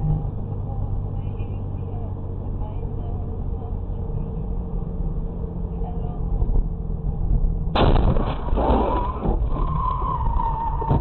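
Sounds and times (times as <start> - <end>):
car engine and road rumble: 0.0 - 11.0
loud car crash: 7.7 - 11.0.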